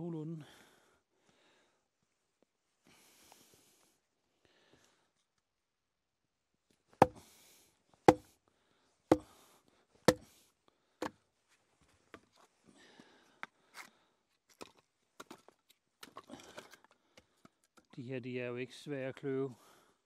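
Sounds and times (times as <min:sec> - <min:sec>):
hatchet chopping wood: 0:08.1 - 0:08.3.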